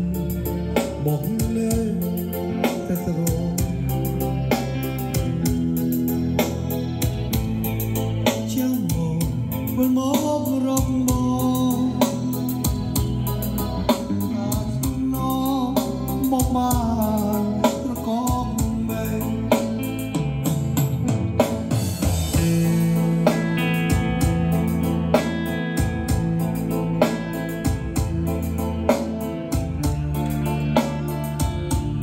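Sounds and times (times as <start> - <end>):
person singing: 0.0 - 5.9, 8.0 - 20.2
guitar and drums: 0.0 - 32.0.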